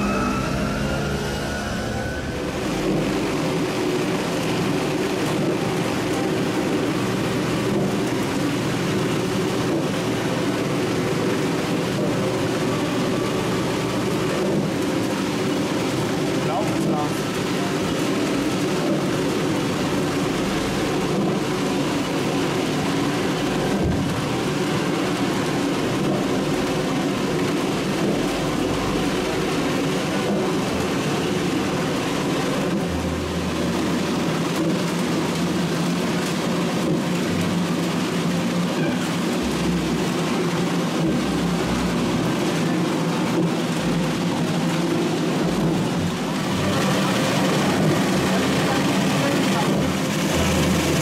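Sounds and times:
constant rushing noise: 0.0 - 51.0
engine drone: 0.0 - 51.0.

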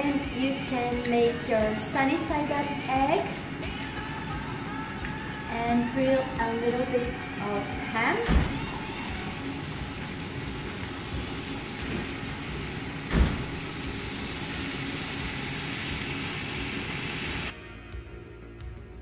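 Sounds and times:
food sizzling in frying pan: 8.5 - 17.5.

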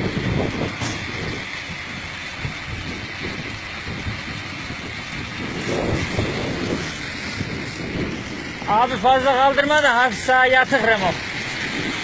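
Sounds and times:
vehicle engine rumbling: 0.0 - 12.0.

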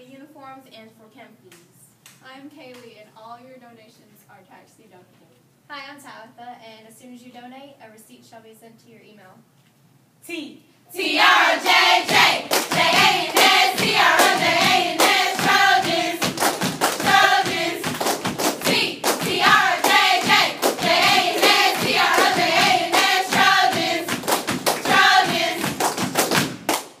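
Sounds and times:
girls chanting a cheer: 10.9 - 18.0, 18.6 - 25.8
rhythmic hand claps: 11.2 - 27.0.

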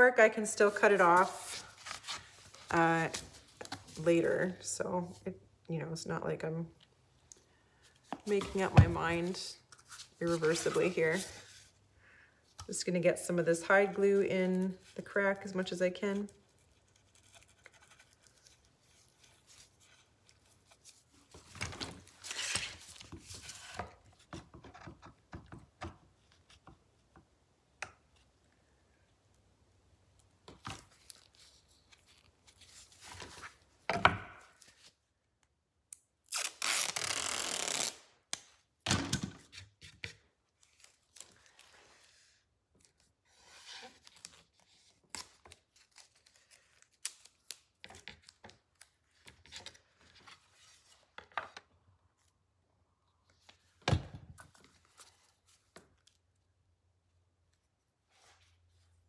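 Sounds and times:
masking tape ripping off roll: 36.2 - 38.5.

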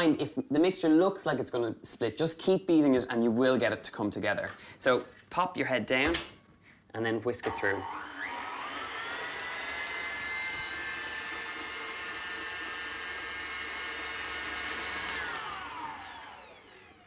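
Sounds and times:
stand mixer motor whine: 7.5 - 17.0.

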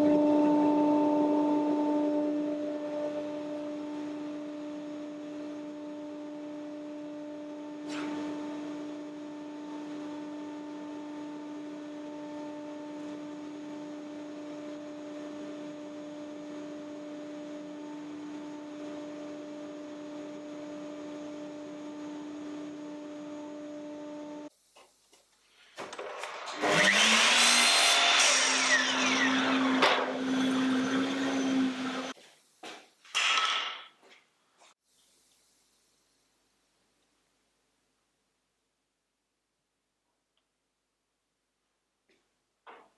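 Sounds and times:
power tool motor spinning up: 26.2 - 32.2.

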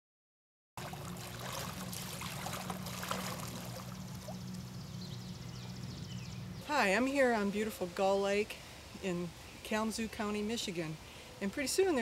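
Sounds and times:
wash of water: 0.8 - 4.3
low steady hum: 0.8 - 12.0.

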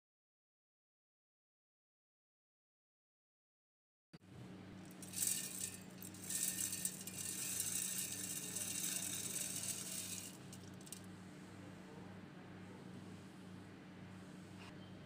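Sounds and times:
oats poured into metal jar: 4.9 - 11.0.

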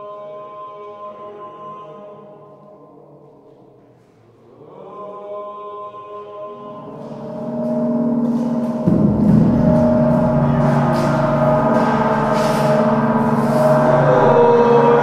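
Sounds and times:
gongs and metal pans ringing: 6.8 - 15.0.

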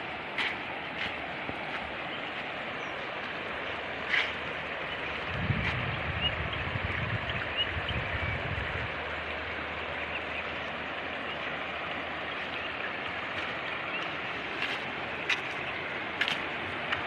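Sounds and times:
water rushing over rocks: 0.0 - 17.0
low microphone rumble: 4.6 - 9.4.

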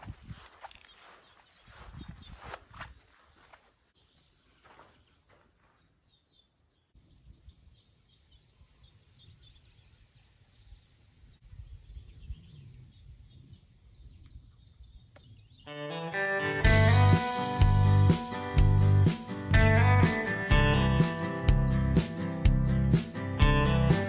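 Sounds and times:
wind rumble on microphone: 0.0 - 0.8, 1.6 - 3.0, 11.2 - 15.3
birds chirping and singing: 0.0 - 15.8.

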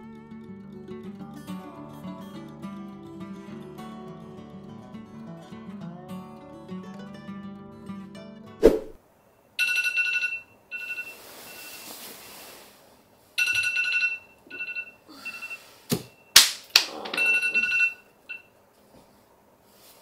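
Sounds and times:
phone alarm ringing: 9.6 - 11.8, 13.4 - 16.4, 17.1 - 18.5.

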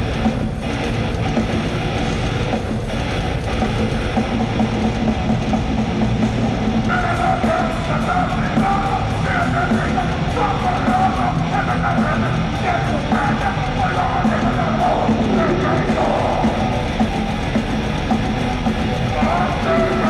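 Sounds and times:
distorted guitars: 0.0 - 20.0
drums: 0.0 - 20.0
person yelling vocals: 6.9 - 16.6.

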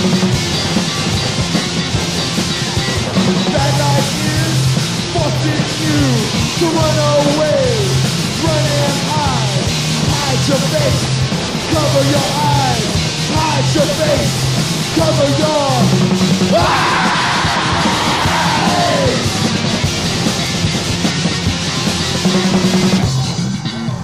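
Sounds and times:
repeating bass line: 0.0 - 24.0
rock music: 0.0 - 24.0
shouted sung vocal: 16.5 - 19.4.

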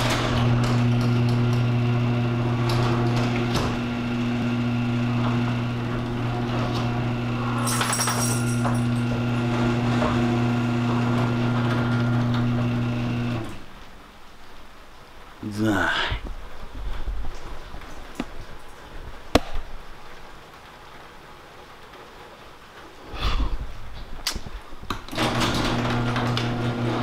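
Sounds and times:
garage door motor hum: 0.0 - 14.1, 25.0 - 27.0.

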